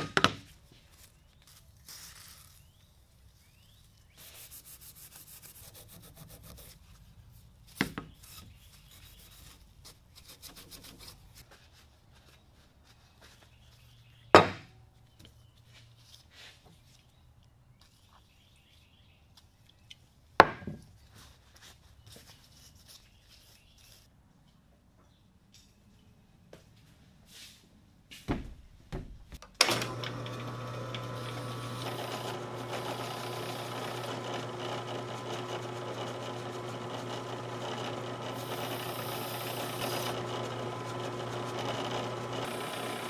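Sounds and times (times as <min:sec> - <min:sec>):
sandpaper scrubbing metal: 0:04.1 - 0:06.9.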